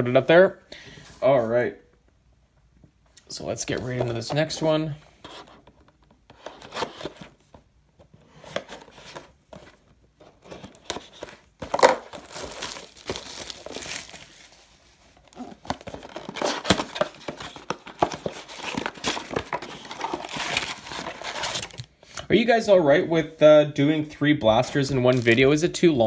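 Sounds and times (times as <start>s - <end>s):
cellophane crinkling and tearing: 10.3s - 21.9s.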